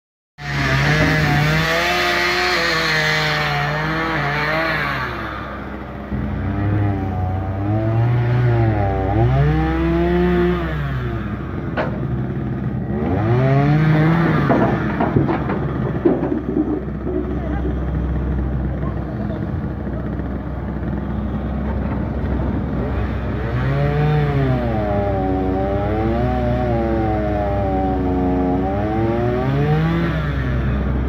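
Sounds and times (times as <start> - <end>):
excavator diesel engine under load: 0.4 - 31.0
soil and stones clattering into truck: 14.1 - 17.7.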